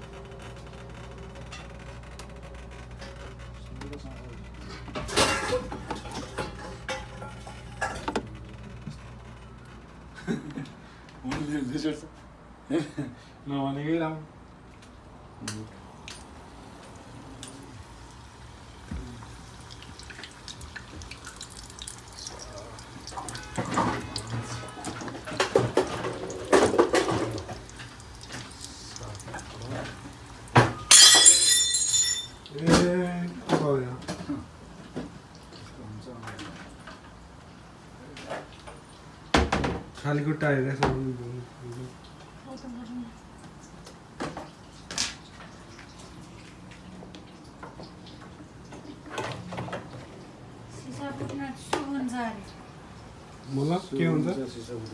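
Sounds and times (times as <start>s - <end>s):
food sizzling in hot oil: 17.8s - 30.6s
glass shattering on tiled floor: 30.6s - 32.5s.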